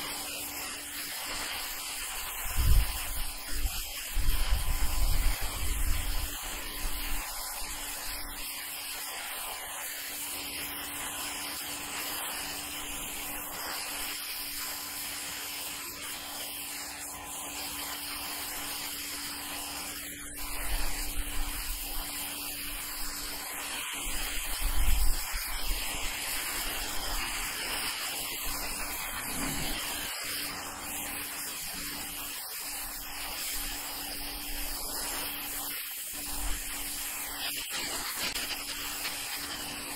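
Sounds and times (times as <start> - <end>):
steady hum: 0.0 - 8.4
pressure washer jet hissing: 0.0 - 39.9.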